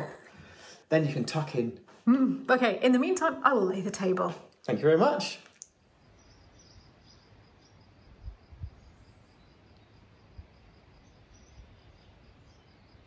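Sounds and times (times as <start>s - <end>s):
high-pitched insect-like chirping: 5.1s - 13.0s.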